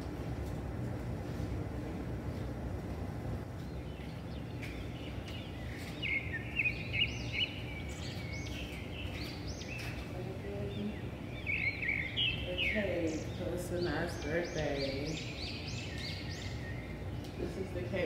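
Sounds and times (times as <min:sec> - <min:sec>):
bird chirping: 0:03.6 - 0:17.6.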